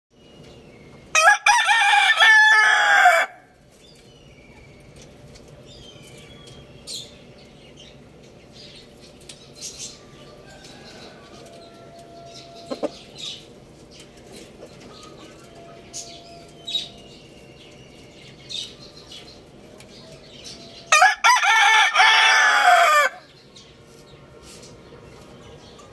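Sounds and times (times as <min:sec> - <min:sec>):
rooster crowing: 0:01.1 - 0:03.6, 0:10.2 - 0:12.9, 0:20.8 - 0:23.3.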